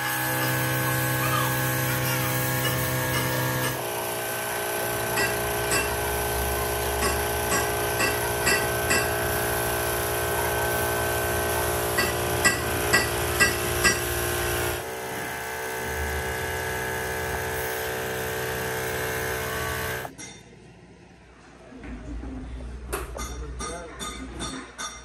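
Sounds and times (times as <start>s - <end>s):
metal lathe whining: 0.0s - 20.1s.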